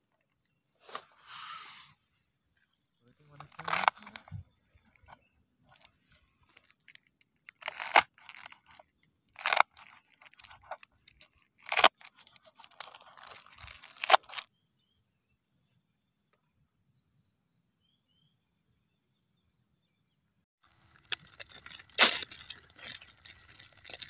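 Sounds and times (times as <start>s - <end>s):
knife cutting vegetable stalks: 3.4s - 4.3s, 7.6s - 8.7s, 9.4s - 10.9s, 11.6s - 14.4s, 21.1s - 24.0s.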